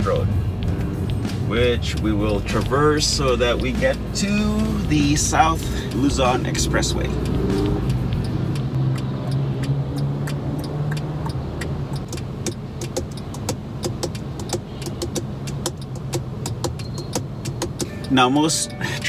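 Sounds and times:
low engine hum: 0.0s - 19.0s
traffic passing: 0.0s - 19.0s
quick sharp ticks: 5.6s - 18.2s.

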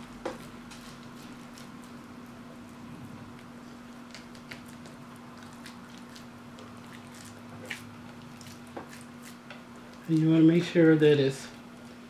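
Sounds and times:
steady low hum: 0.0s - 12.0s
hands squishing ground meat: 3.4s - 10.6s.

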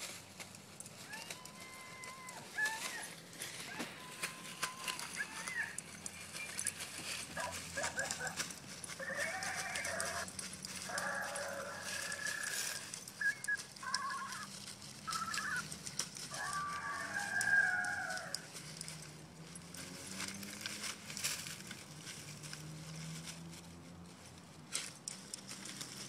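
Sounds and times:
dry leaves rustling: 0.0s - 26.0s
small dogs whining: 0.9s - 19.1s.

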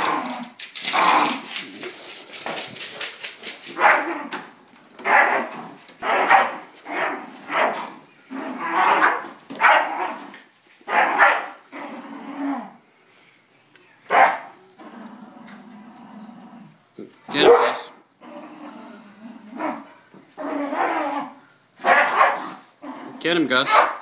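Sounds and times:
dog barking: 3.8s - 4.1s, 5.0s - 7.8s, 8.8s - 10.2s, 10.9s - 11.6s, 14.1s - 14.6s, 17.4s - 18.0s, 21.8s - 22.6s, 23.7s - 24.0s.

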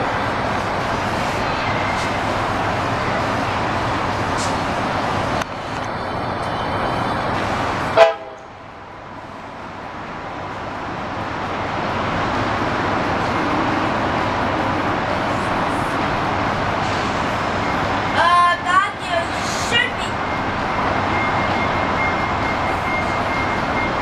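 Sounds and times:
distant city traffic hum: 0.0s - 24.0s
car horn toot: 8.0s - 8.5s.

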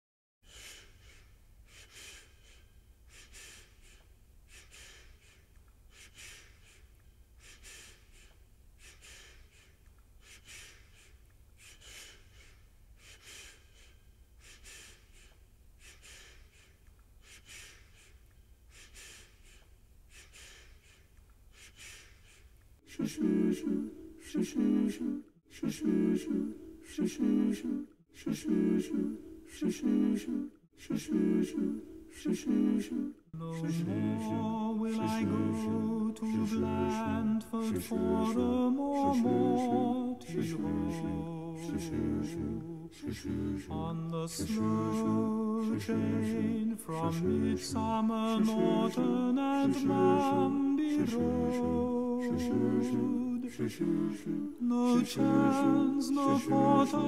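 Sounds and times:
voices singing chords: 22.8s - 57.0s.

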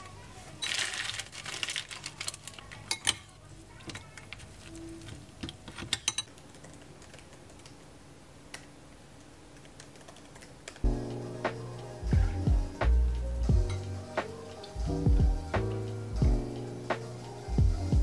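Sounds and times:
background music: 10.8s - 18.0s.

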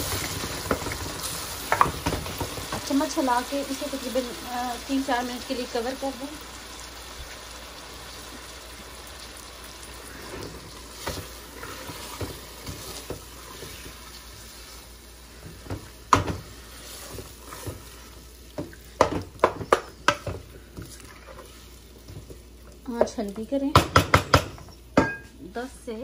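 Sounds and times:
meat sizzling in a pot: 0.0s - 26.0s
wooden spoon scraping and knocking pot: 10.2s - 14.1s, 15.4s - 25.3s.

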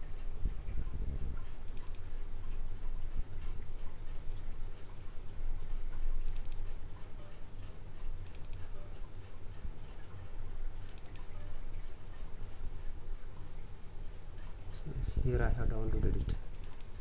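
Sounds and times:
low steady hum: 0.0s - 17.0s
computer mouse double-clicks: 1.6s - 2.0s, 6.3s - 6.6s, 8.2s - 8.7s, 10.9s - 11.3s, 16.5s - 16.9s.

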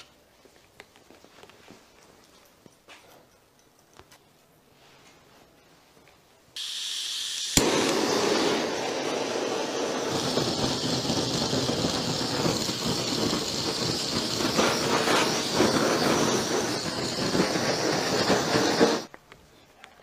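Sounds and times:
blowtorch hissing: 6.6s - 19.1s.

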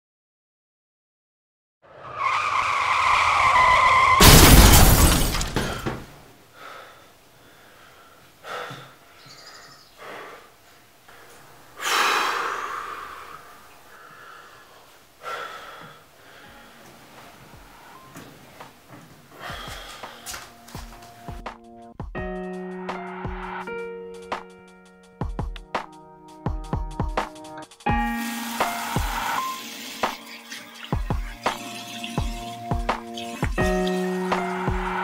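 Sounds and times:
car tyres screeching: 1.8s - 4.3s, 33.6s - 35.0s
car crash: 1.9s - 6.2s
scattered debris noises: 2.9s - 6.2s.

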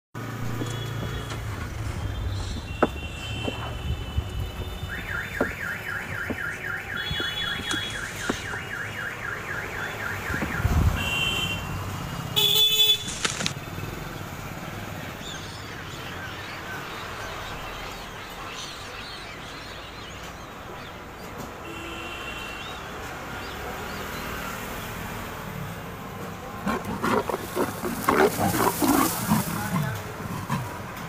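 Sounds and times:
knocks: 2.5s - 8.6s
steady rustling: 26.6s - 31.0s.

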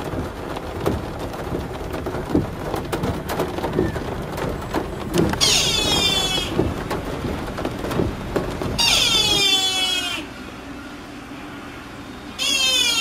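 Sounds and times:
deer stag calling: 8.8s - 10.3s, 12.4s - 13.0s.

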